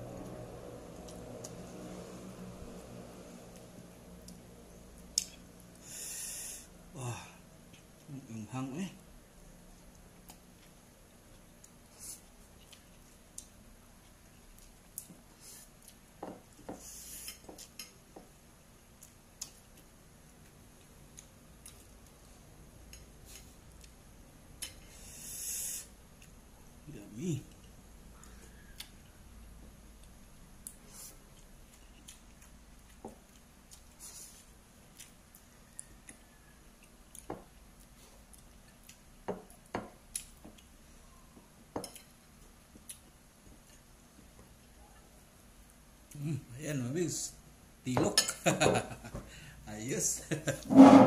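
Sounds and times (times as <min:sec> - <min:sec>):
soft wet chewing smacks: 0:27.5 - 0:29.2, 0:30.0 - 0:46.2.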